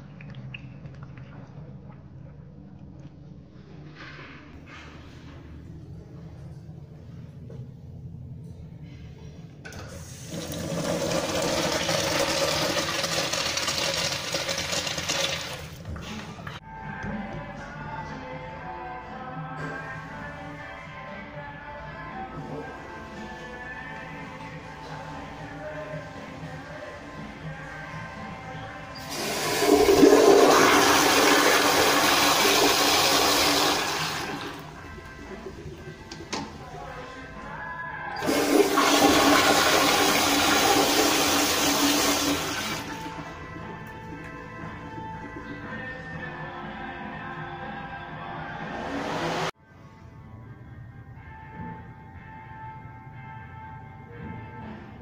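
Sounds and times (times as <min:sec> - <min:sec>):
urinal flushing: 0:09.7 - 0:16.2, 0:29.0 - 0:36.6, 0:38.2 - 0:43.3.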